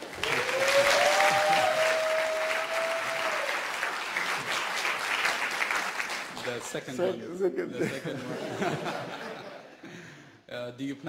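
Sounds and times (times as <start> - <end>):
audience applauding and cheering: 0.0 - 6.6.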